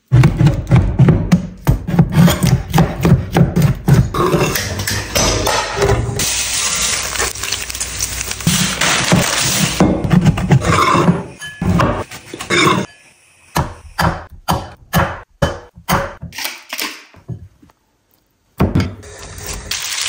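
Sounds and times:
fat sizzling in a frying pan: 6.2 - 9.8, 19.0 - 20.0.

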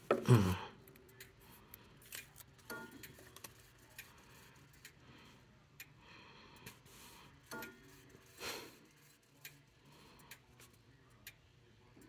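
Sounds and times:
faint clicks and taps: 0.0 - 5.0.

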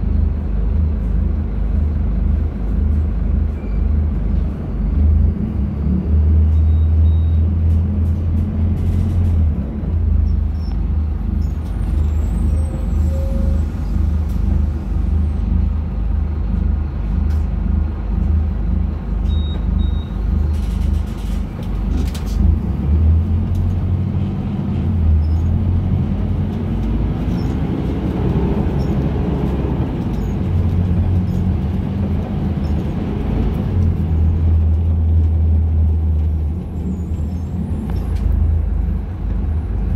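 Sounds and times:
bus diesel engine idling: 6.2 - 39.9.

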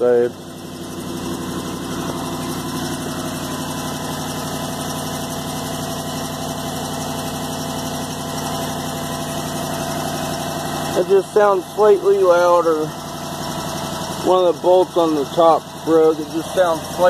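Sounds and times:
car engine idling: 0.0 - 17.0
fast ticking exhaust leak: 0.0 - 17.0.

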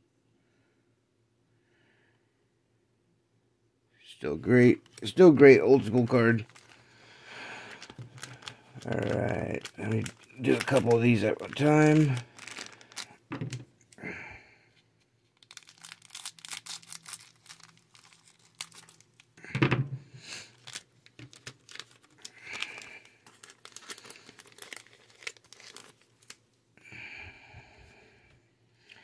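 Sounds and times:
wrappers crinkling and tearing: 4.5 - 13.6, 15.2 - 19.4, 20.3 - 26.4
cards being handled: 4.6 - 6.8, 7.6 - 13.6, 15.0 - 19.3, 20.4 - 26.4.

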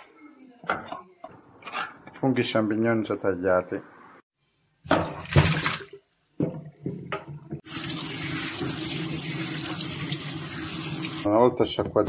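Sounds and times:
kitchen tap running: 7.6 - 11.3.

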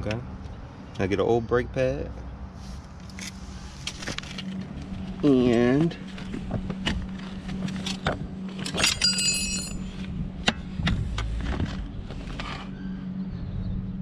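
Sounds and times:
low steady hum: 2.2 - 14.0
metal tools clicking and clinking: 7.8 - 9.9.

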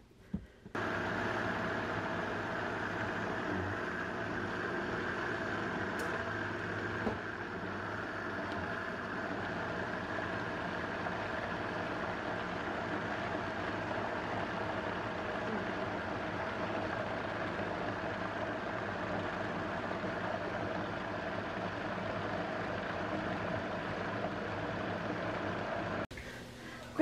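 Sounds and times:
blender running on high: 0.8 - 26.0.

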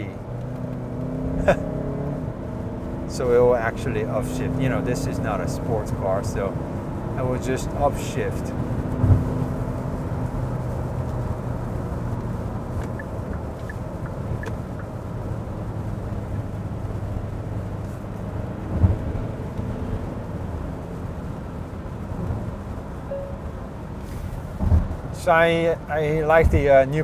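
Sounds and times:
car cabin drone on wet road: 0.0 - 27.0
thump: 24.6 - 24.9.

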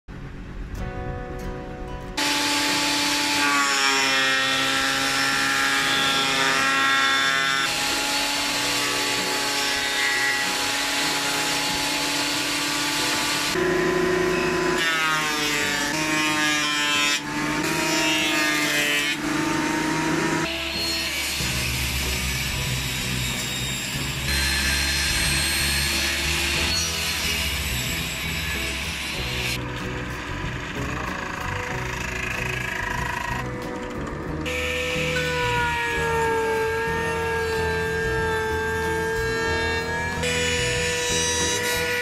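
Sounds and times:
planer machine running: 2.2 - 42.0
high motor whine: 11.5 - 16.0, 19.2 - 41.6.

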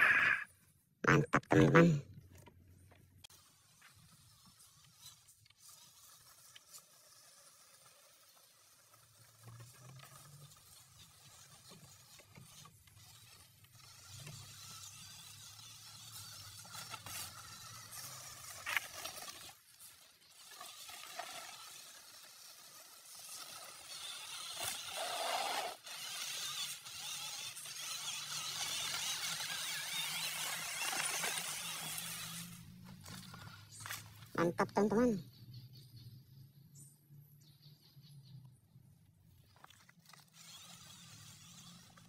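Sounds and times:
toy car motor whirring: 3.2 - 34.3, 39.3 - 42.0
tyres brushing grass: 3.3 - 34.3.

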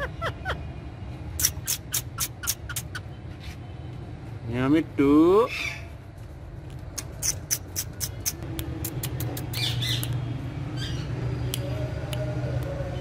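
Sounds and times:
parakeet squawking: 1.4 - 3.2, 10.8 - 11.2
sharp clicks: 6.8 - 10.2.

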